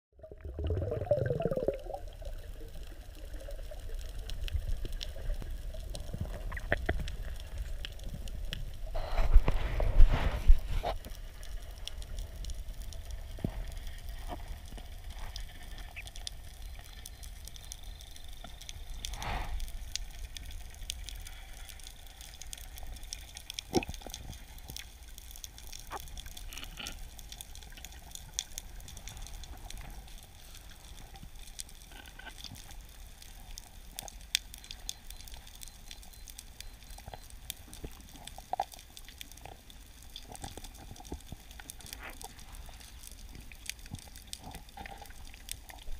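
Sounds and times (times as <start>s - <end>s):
sharp clicks and pops: 0.6s - 45.9s
underwater water hiss: 8.8s - 12.4s, 18.2s - 22.4s.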